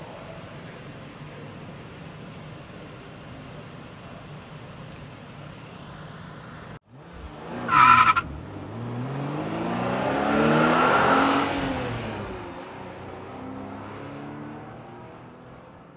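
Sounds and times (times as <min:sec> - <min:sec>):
car engine accelerating: 0:06.8 - 0:15.7
tire squeal: 0:07.6 - 0:08.3.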